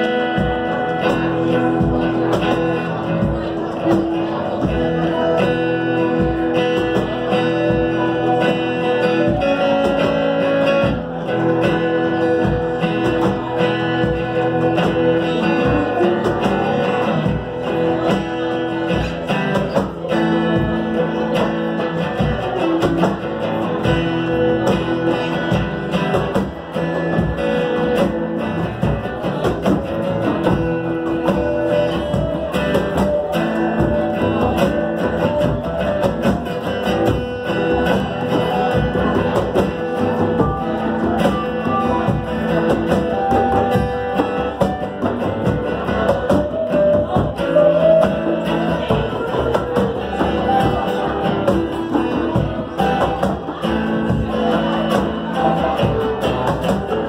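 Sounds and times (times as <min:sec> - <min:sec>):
cajon beat: 0:00.0 - 0:57.0
electric guitar: 0:00.0 - 0:57.0
strummed acoustic guitar: 0:00.0 - 0:57.0.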